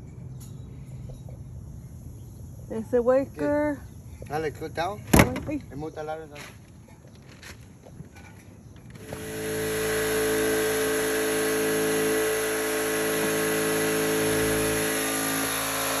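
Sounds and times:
machine motor running: 9.0 - 16.0.

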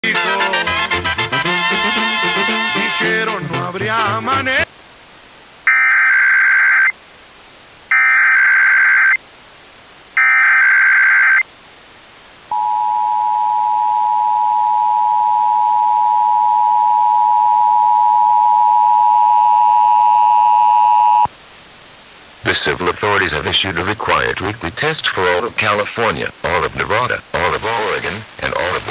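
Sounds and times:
data tone bursts: 5.7 - 6.9, 7.9 - 9.2, 10.2 - 11.4, 12.5 - 21.3
steady two-tone alert signal: 12.5 - 21.3.

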